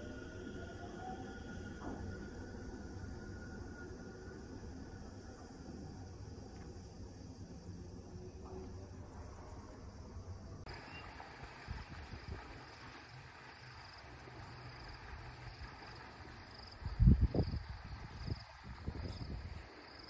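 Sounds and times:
insects chirping: 0.0 - 20.0.

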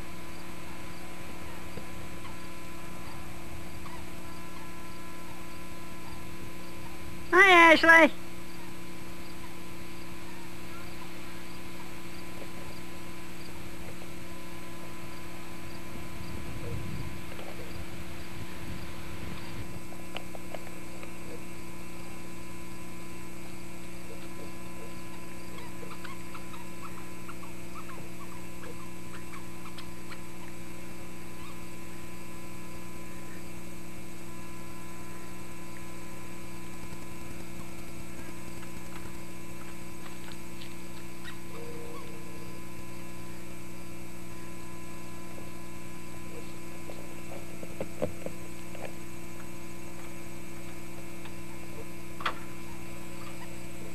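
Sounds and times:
electrical mains hum: 0.0 - 53.9
faint chirps and ticks: 19.4 - 31.6, 35.6 - 53.9.

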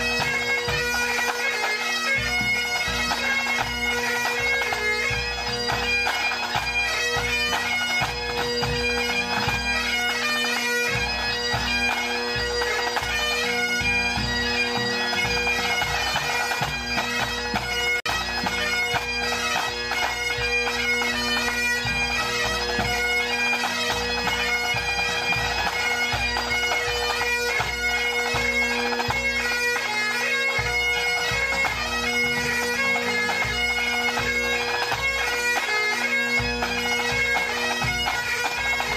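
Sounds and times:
bagpipes playing: 0.0 - 38.9.

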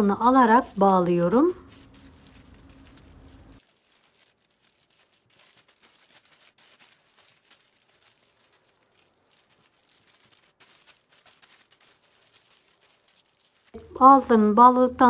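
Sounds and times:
plastic bags crinkling: 0.0 - 15.0.

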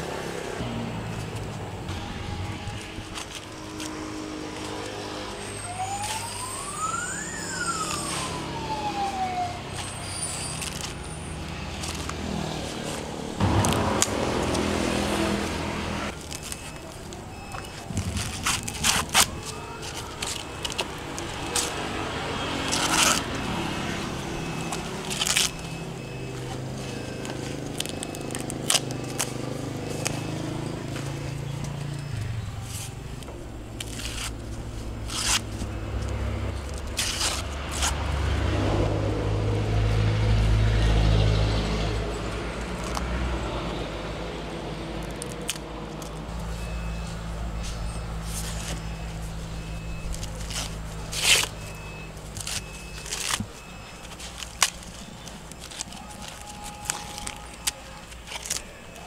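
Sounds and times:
corn husks tearing: 16.1 - 31.2, 32.6 - 38.2, 45.0 - 59.0.

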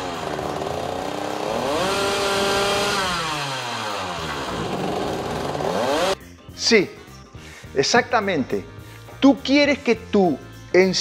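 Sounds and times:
two-stroke motorcycle engine revving: 0.0 - 6.2.

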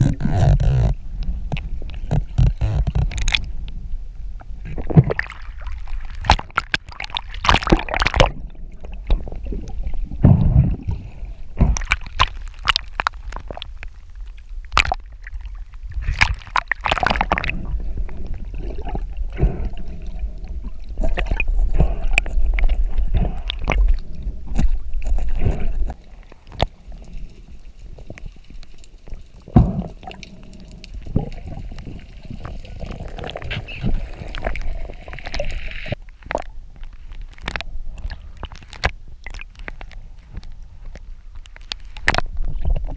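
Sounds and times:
water rushing and gurgling: 0.0 - 36.7.

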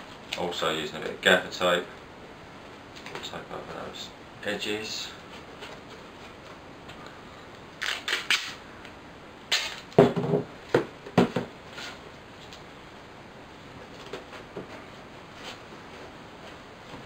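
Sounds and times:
tape ripping off roll: 7.8 - 8.6, 9.5 - 10.0
tape tearing with sharp snaps: 7.8 - 8.6, 9.5 - 10.0.

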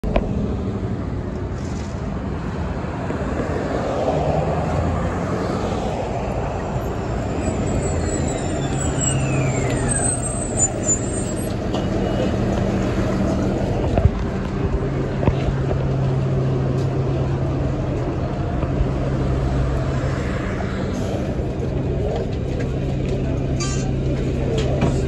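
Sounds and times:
bus engine droning: 0.0 - 25.0.

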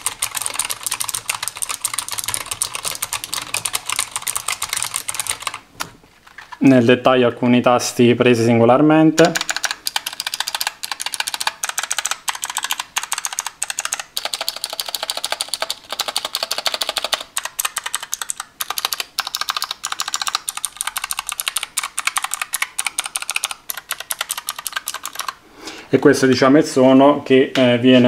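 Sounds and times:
clicky keyboard typing: 0.0 - 5.9, 9.2 - 25.4.

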